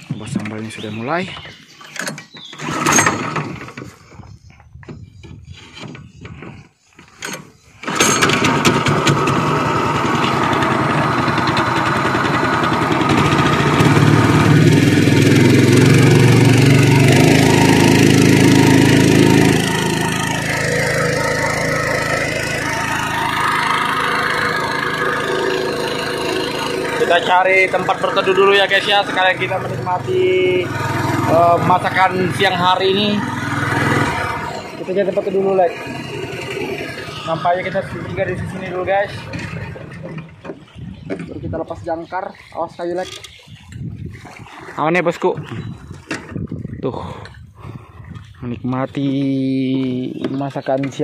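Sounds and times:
small boat engine running: 7.8s - 41.5s.

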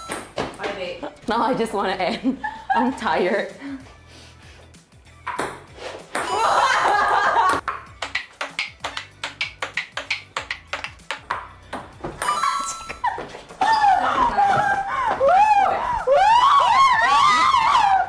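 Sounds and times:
people laughing: 6.3s - 7.6s, 13.0s - 16.7s
ping-pong ball clicks: 7.5s - 11.4s
people shrieking: 13.1s - 18.0s.

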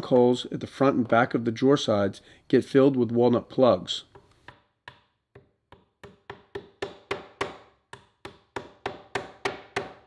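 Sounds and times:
hammer tapping wood: 4.0s - 10.0s.

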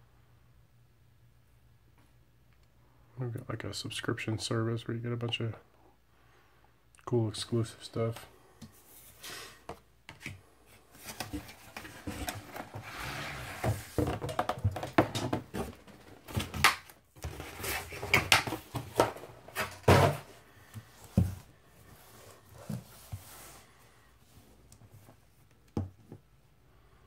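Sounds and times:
cardboard scraping: 10.9s - 16.6s.

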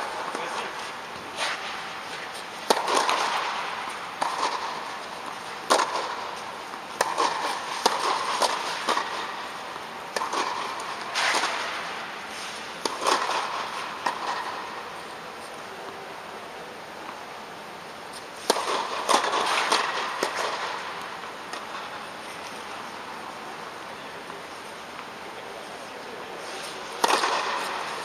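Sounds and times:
tennis balls struck by rackets: 0.1s - 16.0s, 18.1s - 22.6s, 26.5s - 28.0s
tennis balls bouncing on court: 1.7s - 11.8s, 12.8s - 14.9s, 18.1s - 22.4s, 27.0s - 28.0s.

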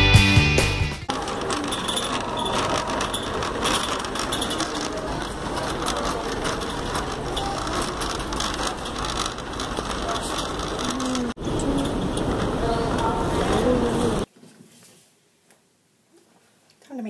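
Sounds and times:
shopping cart rattling: 1.1s - 14.3s.

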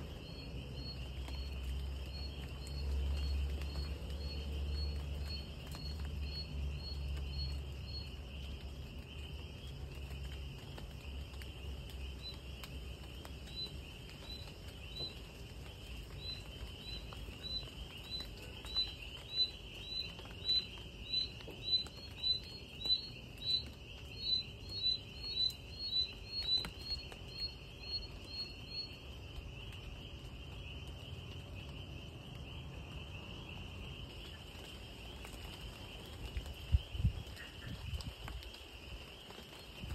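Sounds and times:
insect chirping: 0.0s - 39.9s.

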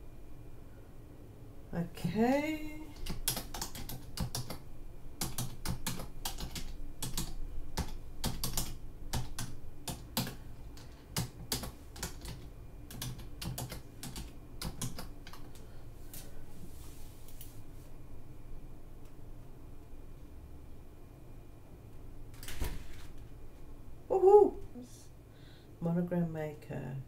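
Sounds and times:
typing on computer keyboard: 2.9s - 4.6s, 5.2s - 15.6s.

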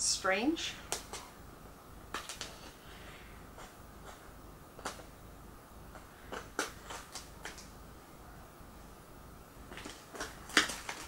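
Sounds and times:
small items tapping: 2.1s - 2.8s, 5.9s - 7.7s, 9.7s - 11.0s
packaging crinkling: 9.7s - 11.0s.

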